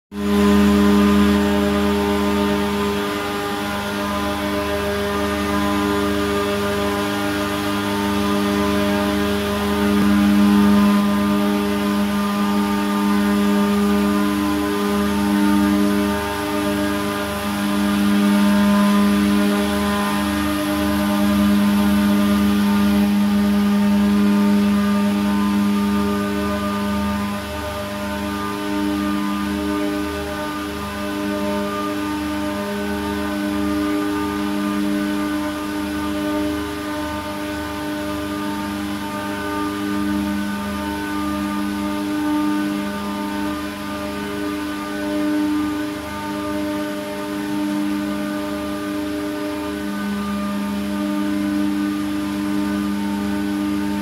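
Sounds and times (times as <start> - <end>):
loud mechanical machinery drone: 0.1 - 54.0
low mechanical throb: 0.1 - 54.0.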